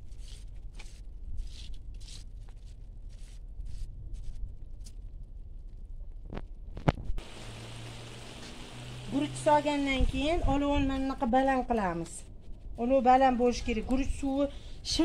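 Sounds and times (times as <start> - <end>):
faint hiss with low hum: 7.2 - 11.1.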